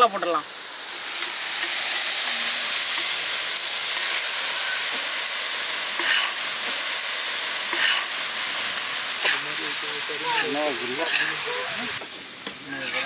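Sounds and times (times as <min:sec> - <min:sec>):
fish sizzling on a griddle: 0:00.0 - 0:13.0
metal spatula scraping: 0:10.4 - 0:11.4, 0:12.8 - 0:13.0.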